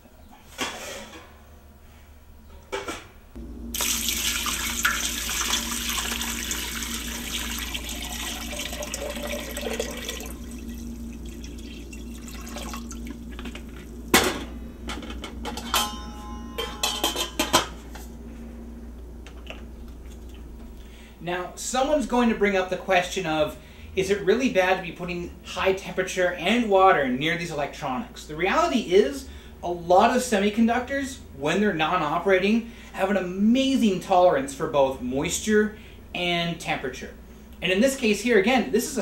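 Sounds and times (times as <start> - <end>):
steady low hum: 0.0 - 39.0
water pouring into metal pot: 3.8 - 13.9.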